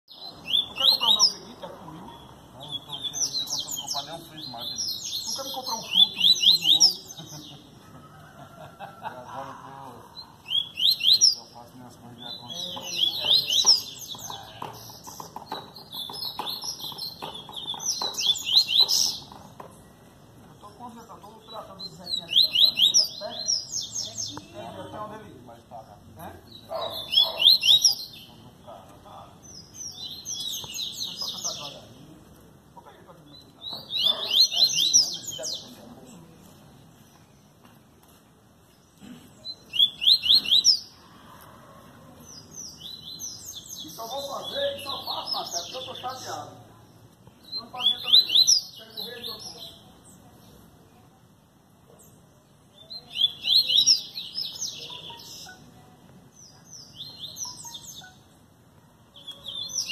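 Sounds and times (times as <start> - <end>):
bird singing whistled notes: 0.1 - 1.4, 10.4 - 11.4, 21.9 - 23.2, 39.6 - 40.9, 47.4 - 49.8.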